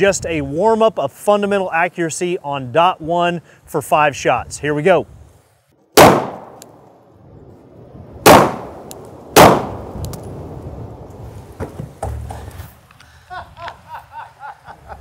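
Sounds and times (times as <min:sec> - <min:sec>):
pistol shots with echo: 0:06.0 - 0:06.7, 0:08.2 - 0:10.0.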